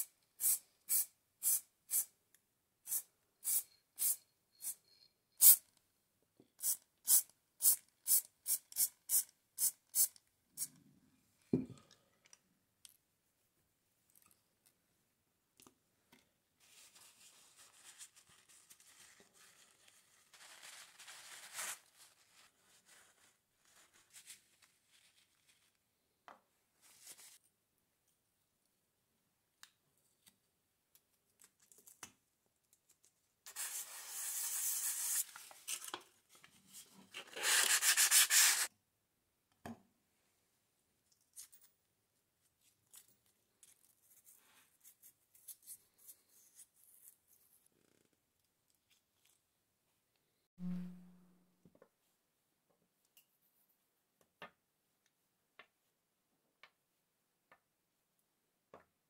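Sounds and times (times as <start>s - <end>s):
spray can hissing: 0.4s - 2.1s, 2.9s - 4.8s, 5.4s - 5.6s, 6.6s - 10.1s
paper towel rubbing metal parts: 37.3s - 38.7s.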